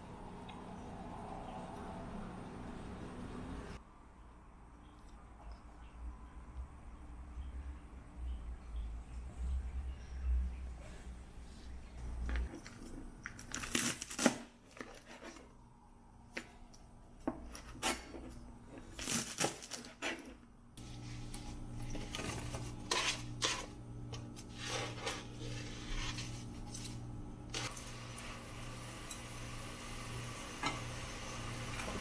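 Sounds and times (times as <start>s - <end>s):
steady low hum: 20.5s - 32.0s.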